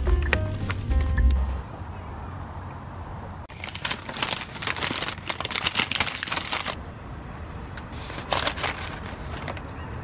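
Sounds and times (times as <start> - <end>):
paper wrapper crinkling: 3.5 - 6.8, 8.0 - 9.7.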